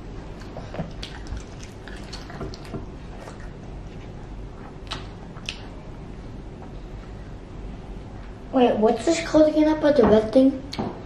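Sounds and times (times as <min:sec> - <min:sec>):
low room rumble: 0:00.0 - 0:11.0
children chewing: 0:00.3 - 0:05.8.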